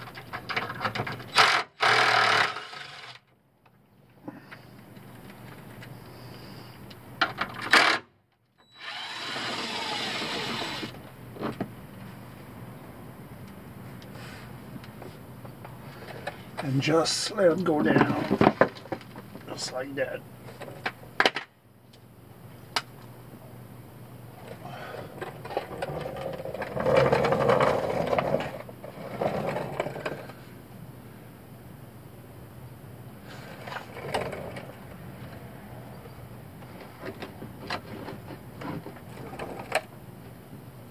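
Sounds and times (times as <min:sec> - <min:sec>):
power tool whirring: 0:01.3 - 0:03.2, 0:08.6 - 0:11.0.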